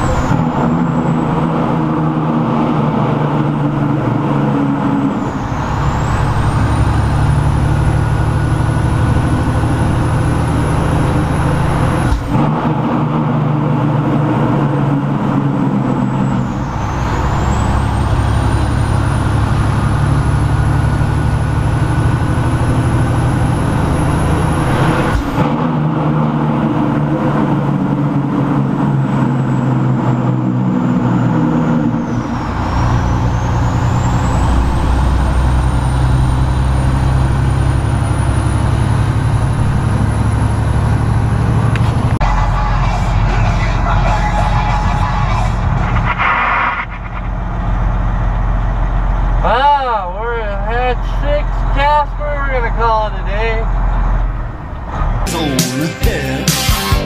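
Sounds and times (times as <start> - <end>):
diesel truck engine running: 0.0 - 57.0
high engine whine: 0.0 - 57.0.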